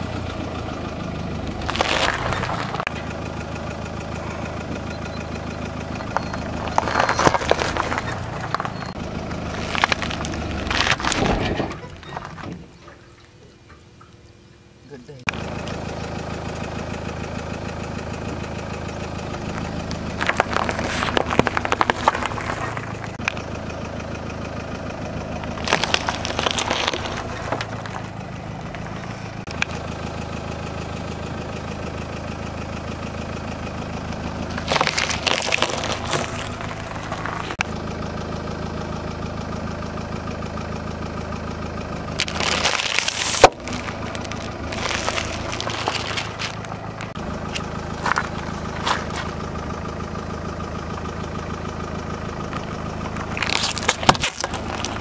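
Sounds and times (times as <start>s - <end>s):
car engine idling: 0.0s - 55.0s
tyre crushing vegetables: 1.6s - 2.9s, 9.4s - 11.4s, 25.5s - 28.1s, 34.5s - 37.6s, 42.2s - 49.4s, 53.4s - 55.0s.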